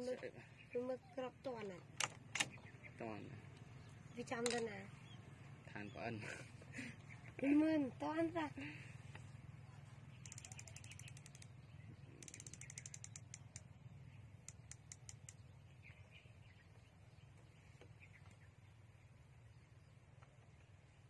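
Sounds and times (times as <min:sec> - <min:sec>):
scope turret clicks: 0:02.0 - 0:02.6, 0:04.4 - 0:04.7, 0:10.2 - 0:11.5, 0:12.2 - 0:13.7, 0:14.4 - 0:15.4.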